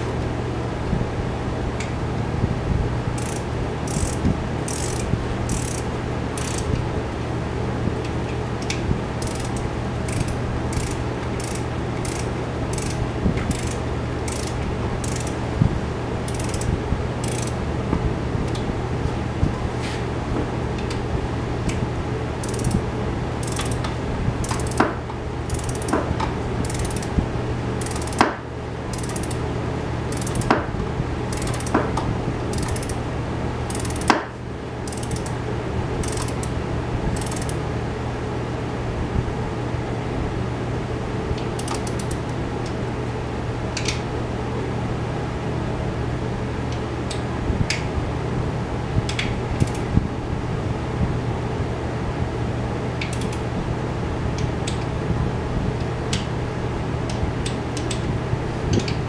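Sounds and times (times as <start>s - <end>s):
steady low hum: 0.0s - 59.0s
socket ratchet clicking: 3.2s - 6.8s, 8.6s - 15.4s, 16.3s - 17.6s, 22.4s - 22.8s, 23.4s - 26.0s, 26.6s - 27.1s, 27.8s - 28.2s, 28.9s - 29.4s, 30.1s - 30.6s, 31.3s - 31.8s, 32.5s - 33.0s, 33.7s - 34.2s, 34.9s - 35.4s, 36.0s - 36.6s, 37.2s - 37.6s, 41.5s - 42.3s.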